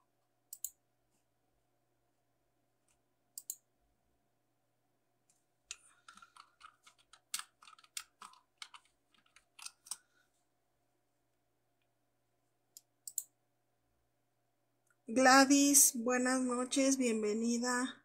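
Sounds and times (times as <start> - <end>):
keyboard keys clicking: 5.7 - 10.0.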